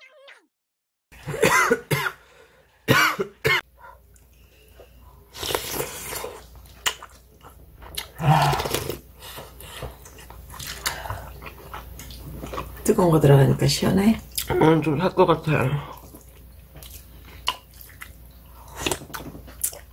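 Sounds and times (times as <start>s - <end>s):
person coughing harshly: 1.3s - 2.2s, 2.9s - 3.6s.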